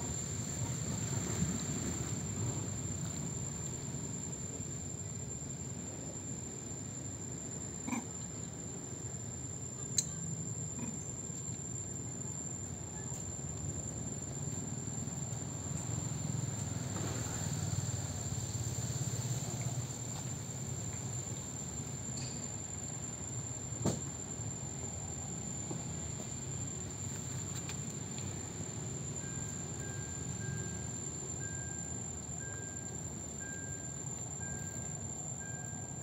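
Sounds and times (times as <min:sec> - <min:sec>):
low background hum: 0:00.0 - 0:36.0
insect calling high-pitched tone: 0:28.6 - 0:36.0.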